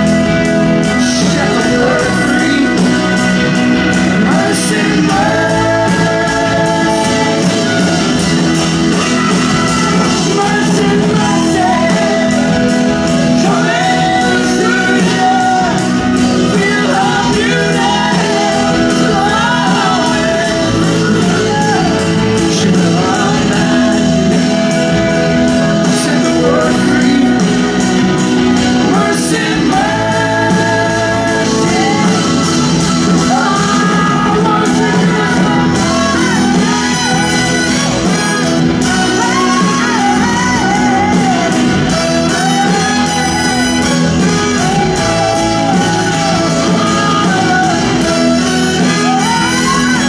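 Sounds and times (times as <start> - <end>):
drums: 0.0 - 50.0
electric guitars: 0.0 - 50.0
horn section: 0.0 - 50.0
person singing: 0.0 - 50.0.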